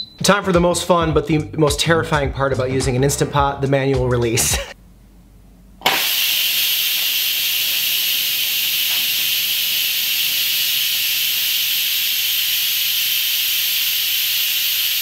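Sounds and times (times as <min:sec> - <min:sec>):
pressure cooker steam hissing: 0:05.8 - 0:15.0.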